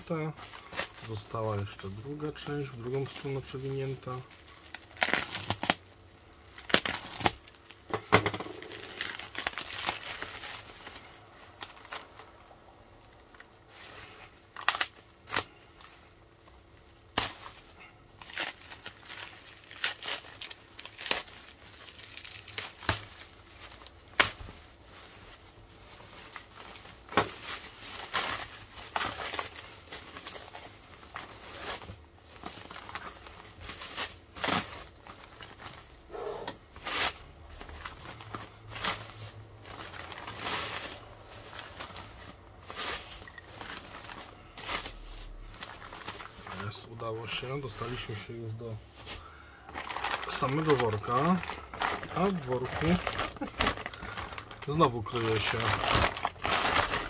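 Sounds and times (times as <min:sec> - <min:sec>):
plastic film tearing: 0:00.0 - 0:16.0, 0:17.0 - 0:25.3, 0:26.0 - 0:36.2, 0:36.8 - 0:48.2, 0:49.0 - 0:57.0
plastic film crinkling: 0:00.0 - 0:57.0.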